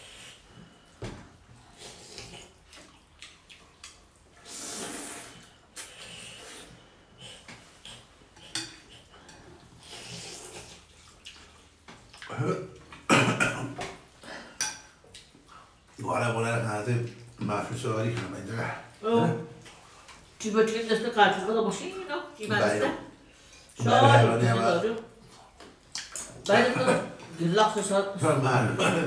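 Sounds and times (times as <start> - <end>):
slurping noodles: 1.6 - 3.0, 4.3 - 9.1, 9.7 - 11.7.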